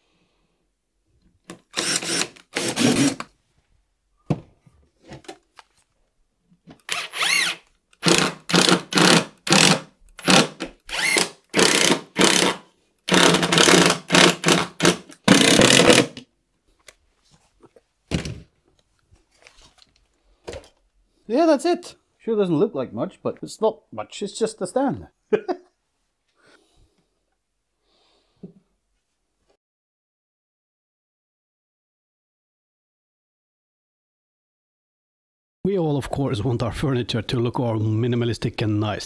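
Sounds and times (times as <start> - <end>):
power drill short bursts: 1.7 - 3.2, 6.9 - 16.1.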